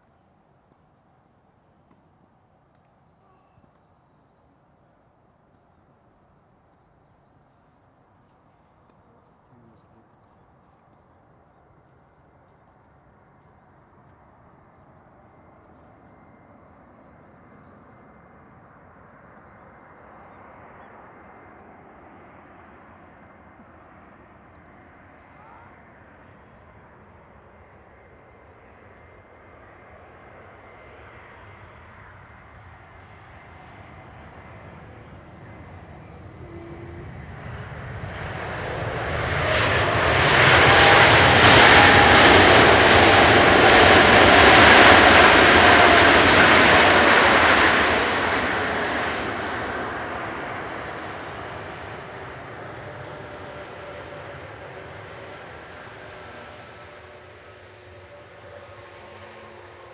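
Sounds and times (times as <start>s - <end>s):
jet engine rumble: 0.0s - 59.9s
jet engine whine: 0.0s - 59.9s.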